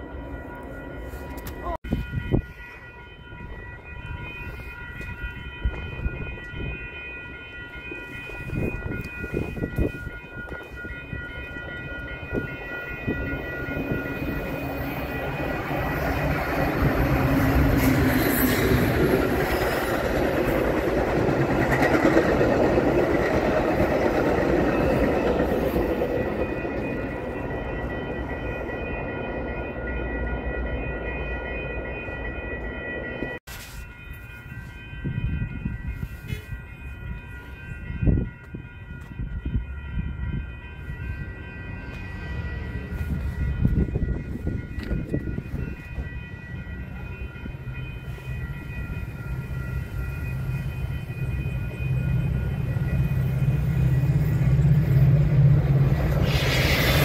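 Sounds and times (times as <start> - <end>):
steady high ringing: 0.0 - 57.0
train wheels rumbling and clacking: 11.7 - 29.6, 41.4 - 57.0.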